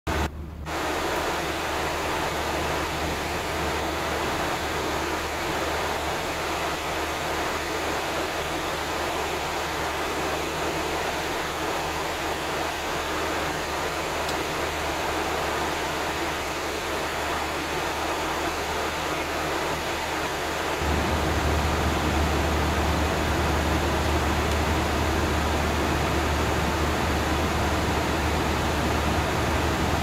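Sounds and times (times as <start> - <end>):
airliner cabin airflow and engine: 0.1 - 30.0
low hum: 20.8 - 30.0.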